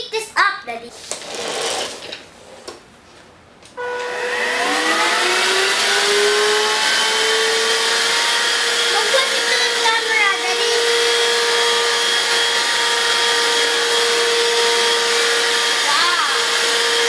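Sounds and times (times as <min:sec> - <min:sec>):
vacuum motor whine: 0:03.8 - 0:17.0.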